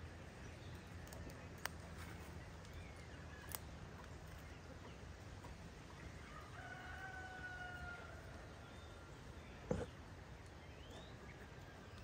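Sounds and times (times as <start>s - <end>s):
rooster crowing: 6.2s - 8.4s.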